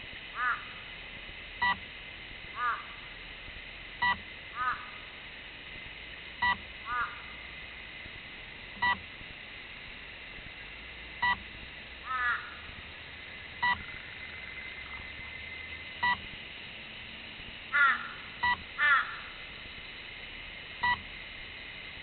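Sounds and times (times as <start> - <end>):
bird calling: 4.6 - 5.0, 6.9 - 7.3, 12.1 - 16.2, 17.7 - 19.4.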